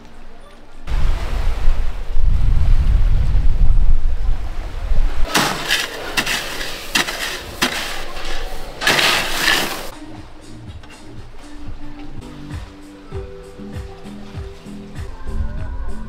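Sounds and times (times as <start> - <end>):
wind rumble on microphone: 0.8 - 5.3, 14.4 - 16.0
plastic dish scraping through ice: 5.3 - 9.9
soft music: 9.5 - 16.0.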